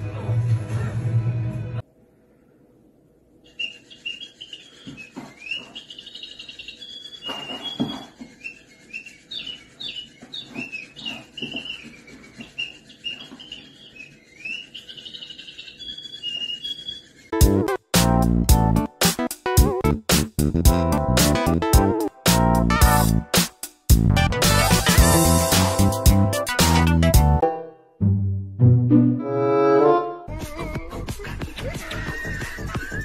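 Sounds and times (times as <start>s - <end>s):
high bird-like chirps and trills: 3.4s - 17.4s.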